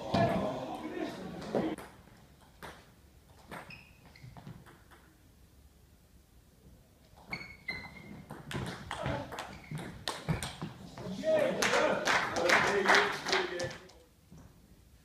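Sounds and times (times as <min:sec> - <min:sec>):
table tennis ball hitting bats: 0:08.2 - 0:10.8.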